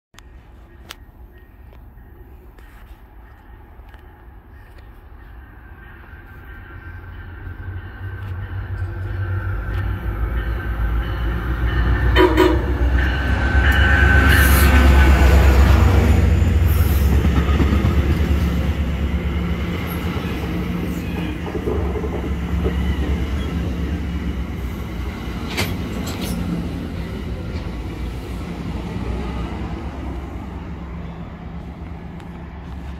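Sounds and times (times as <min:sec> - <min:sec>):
train rumbling past: 0:00.2 - 0:32.9
train horn blast: 0:11.1 - 0:16.0.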